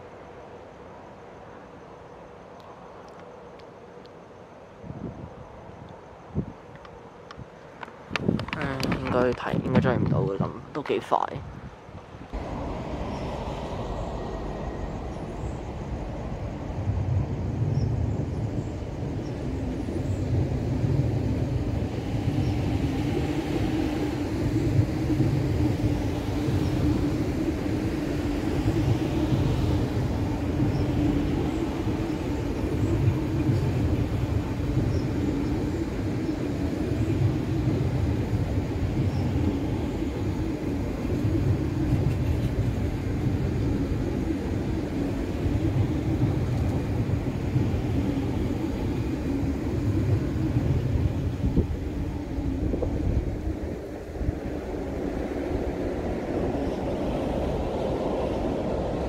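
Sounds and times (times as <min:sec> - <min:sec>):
low hum: 0:12.3 - 0:59.0
train wheels rumbling on track: 0:12.3 - 0:59.0.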